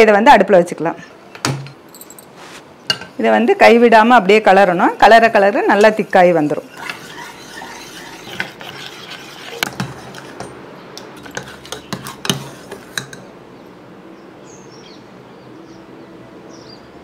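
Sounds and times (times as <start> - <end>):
spoon stirring porridge in pot: 5.2 - 13.3
spoon clinking against pot: 9.4 - 13.3.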